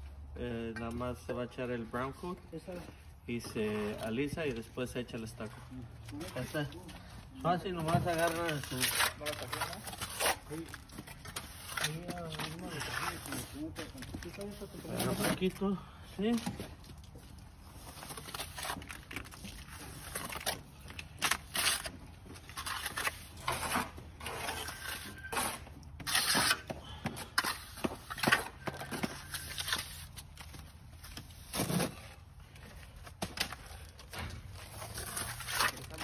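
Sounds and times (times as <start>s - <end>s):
trowel scraping wet plaster: 8.1s - 13.6s, 21.2s - 26.7s, 34.7s - 36.0s.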